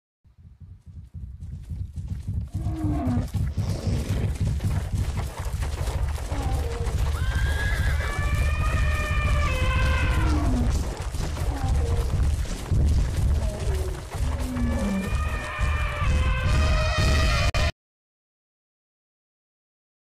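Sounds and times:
hooves pounding: 0.3 - 17.7
deep rumble: 0.4 - 7.2, 8.0 - 17.7
animal calls: 6.3 - 12.4, 13.2 - 17.5.

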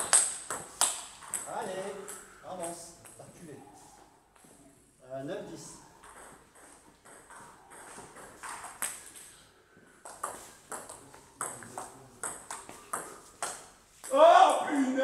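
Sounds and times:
ping pong ball hitting bats: 0.0 - 3.2, 5.8 - 14.2.

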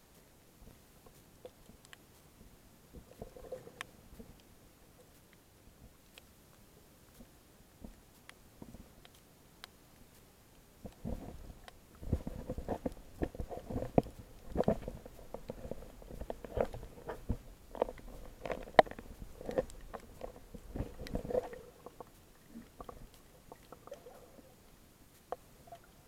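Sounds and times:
clicks and knocks underwater: 2.9 - 4.4, 10.8 - 24.5.

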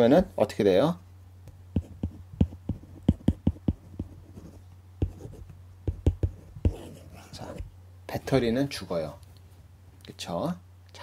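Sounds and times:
steady low hum: 0.0 - 11.0
stylus tapping on tablet screen: 1.5 - 4.2, 5.0 - 6.9.

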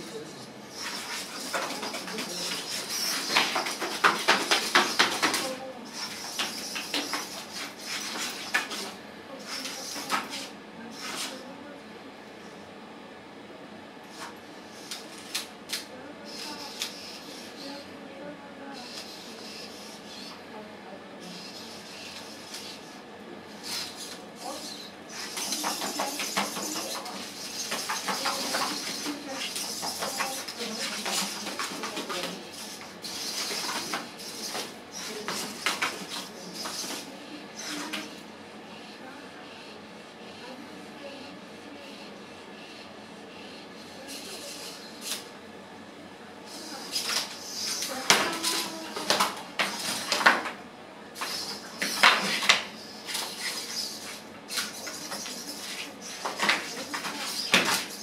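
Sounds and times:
servo motors whirring: 16.2 - 17.8, 18.8 - 20.4.

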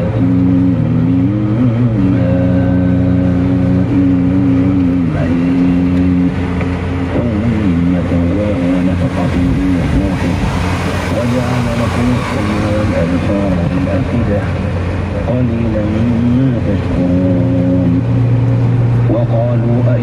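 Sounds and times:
man chanting: 0.0 - 6.4, 7.0 - 18.1, 19.1 - 20.0
car road and engine rumble: 0.0 - 20.0.

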